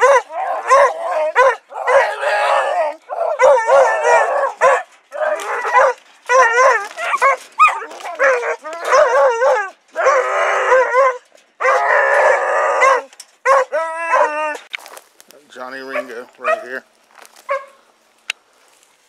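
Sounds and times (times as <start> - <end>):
hounds barking and baying: 0.0 - 14.7, 15.8 - 16.8, 17.4 - 17.8.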